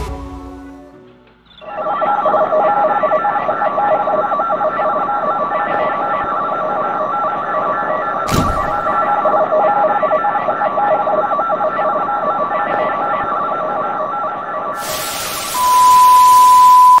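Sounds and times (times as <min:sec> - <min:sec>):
beeping warbling radio tones: 0:01.5 - 0:17.0
steady high beep: 0:01.5 - 0:17.0
static hiss: 0:14.8 - 0:17.0.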